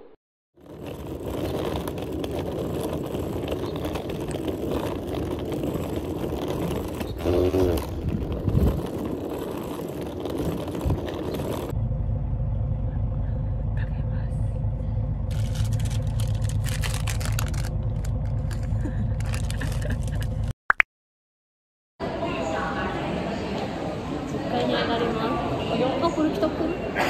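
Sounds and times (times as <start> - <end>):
street noise: 0.0 - 20.5, 22.0 - 27.0
suitcase wheels rolling on pavement: 0.6 - 11.8, 15.3 - 20.5
bus engine rumble: 4.0 - 20.5.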